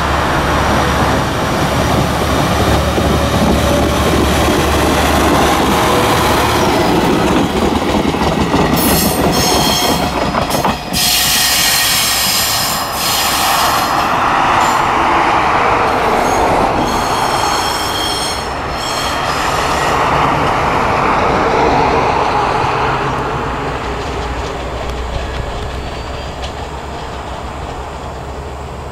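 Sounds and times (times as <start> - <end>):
railcar engine rumble: 0.0 - 28.9
train wheels squealing: 8.7 - 15.0, 16.0 - 20.0, 25.1 - 27.2.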